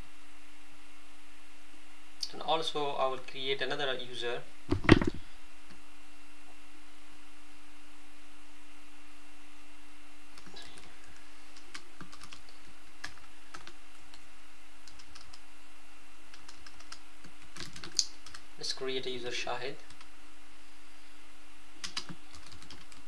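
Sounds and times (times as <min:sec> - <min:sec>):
steady low hum: 0:00.0 - 0:23.0
computer keyboard keystrokes: 0:10.4 - 0:14.2, 0:14.8 - 0:15.4, 0:16.3 - 0:18.4, 0:21.8 - 0:23.0.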